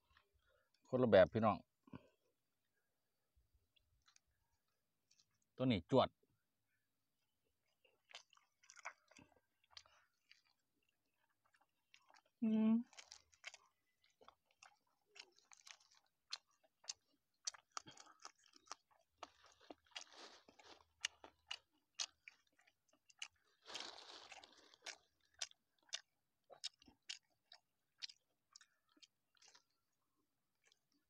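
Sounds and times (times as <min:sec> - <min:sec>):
close chewing with lip smacks: 0:03.7 - 0:04.4, 0:05.0 - 0:05.5, 0:07.6 - 0:31.0.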